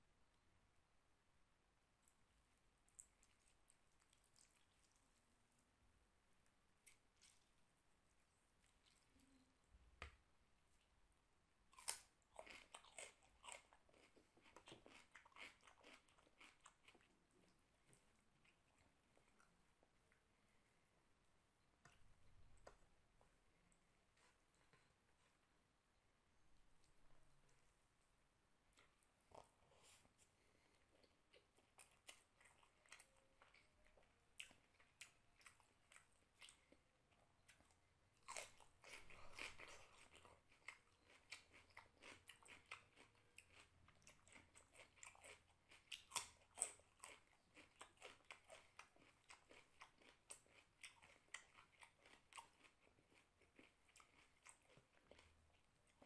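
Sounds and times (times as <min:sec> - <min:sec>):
person chewing food: 0:01.9 - 0:10.2, 0:11.7 - 0:20.9, 0:28.7 - 0:56.0.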